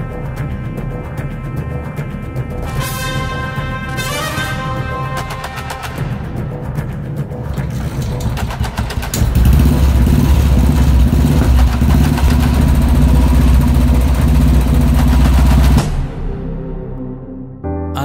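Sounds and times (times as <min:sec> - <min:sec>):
motorcycle engine running: 0:07.3 - 0:16.0
motorcycle kick-start: 0:07.5 - 0:15.8.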